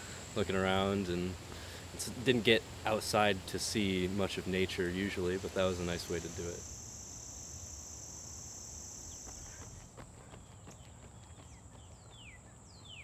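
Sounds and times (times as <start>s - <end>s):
crickets buzzing: 0.0s - 10.0s.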